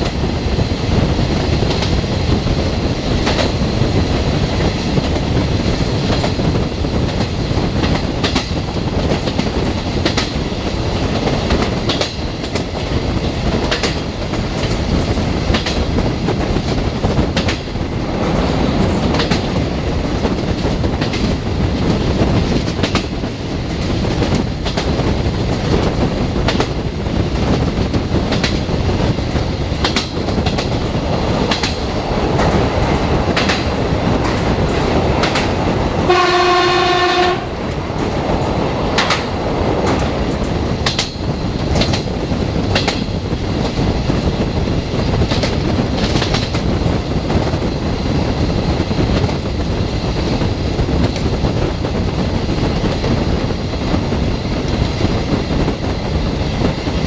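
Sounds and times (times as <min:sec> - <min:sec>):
train rumble: 0:00.0 - 0:57.0
wheels clacking over rail joints: 0:01.4 - 0:44.4
train horn: 0:36.1 - 0:37.6.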